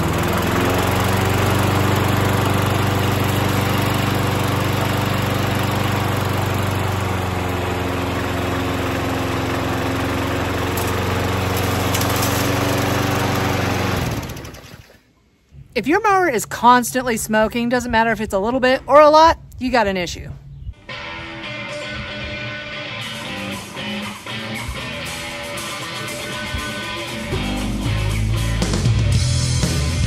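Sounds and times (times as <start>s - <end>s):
lawn mower engine running: 0.0s - 15.0s, 21.5s - 29.8s.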